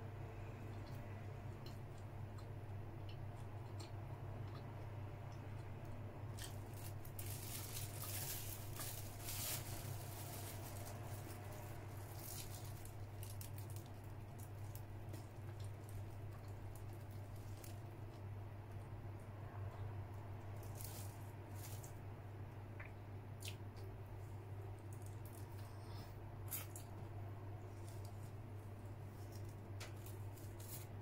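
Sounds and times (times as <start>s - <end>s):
steady low hum: 0.0s - 31.0s
mouth chewing soft bread: 0.4s - 6.9s, 11.4s - 18.9s
bun rustling and tearing: 6.3s - 17.9s, 20.6s - 22.0s, 29.1s - 31.0s.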